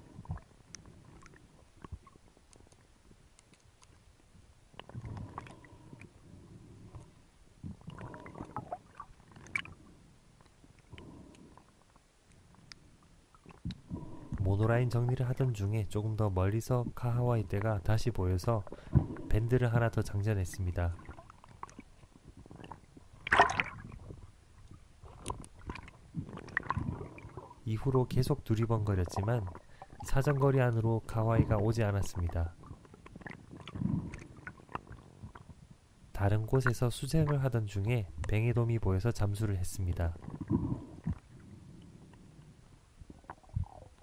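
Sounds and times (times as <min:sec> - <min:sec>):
faint crackles and ticks: 0:00.0 - 0:44.0
water sloshing and gurgling: 0:00.0 - 0:44.0
muffled underwater gurgling: 0:25.0 - 0:35.1.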